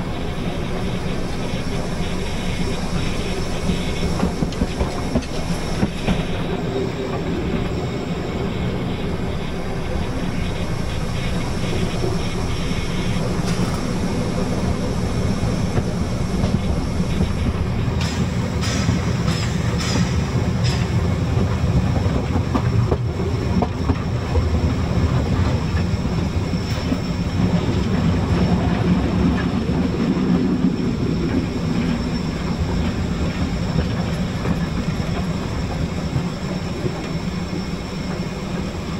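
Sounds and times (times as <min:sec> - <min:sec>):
steam train rumbling: 0:00.0 - 0:38.9
wheel clatter on rails: 0:02.6 - 0:08.5.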